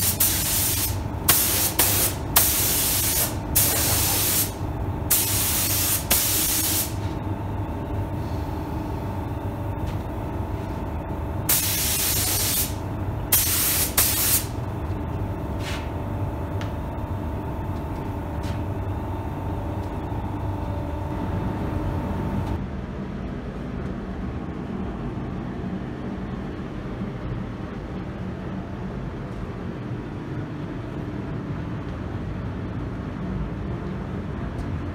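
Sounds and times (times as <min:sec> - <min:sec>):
spray gun hissing in bursts: 0:00.0 - 0:07.0, 0:11.5 - 0:14.5
steady hum: 0:00.0 - 0:34.9.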